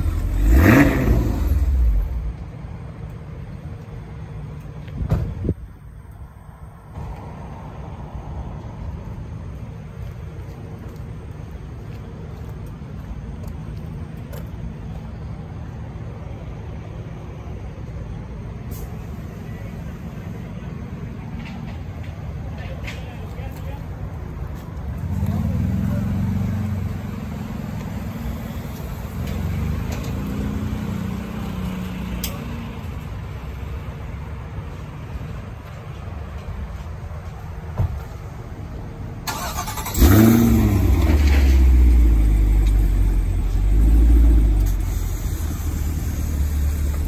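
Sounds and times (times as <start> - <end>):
car engine idling: 38.8 - 47.0.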